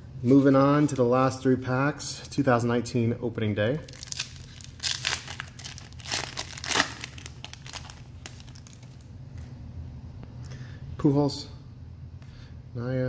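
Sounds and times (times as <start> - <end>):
foil wrapper tearing and crinkling: 3.9 - 9.1.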